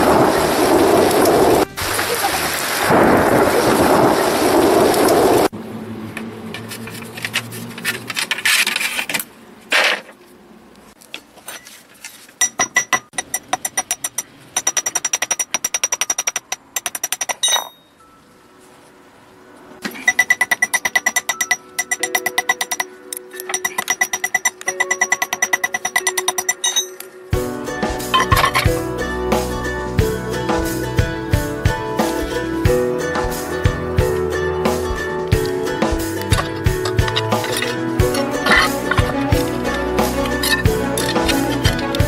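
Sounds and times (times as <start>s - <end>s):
hammer tapping steel wire: 20.0s - 27.0s.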